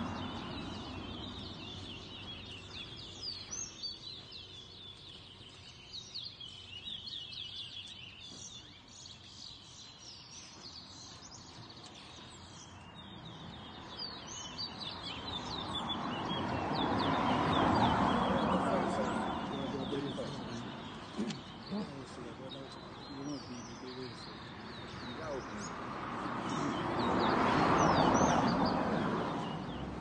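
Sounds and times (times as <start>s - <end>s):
finch singing: 0.0s - 30.0s
background voices: 17.4s - 29.4s.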